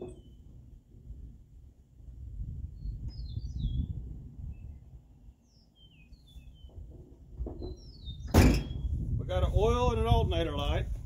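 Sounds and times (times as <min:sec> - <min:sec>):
small birds chirping: 0:00.0 - 0:00.6, 0:02.6 - 0:09.0
low outdoor rumble: 0:06.7 - 0:11.0.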